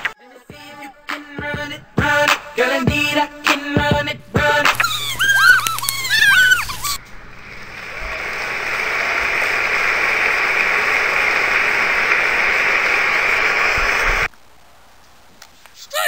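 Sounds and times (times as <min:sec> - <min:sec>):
crowd applause and cheering: 0:04.4 - 0:14.3.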